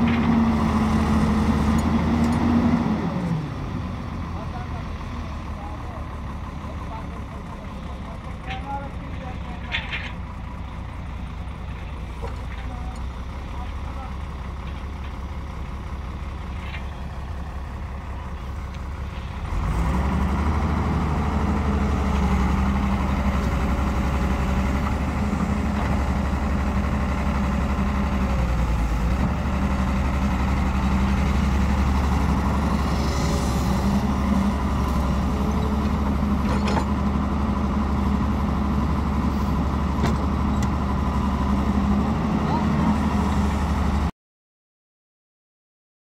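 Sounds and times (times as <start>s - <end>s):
excavator diesel engine running: 0.0s - 44.1s.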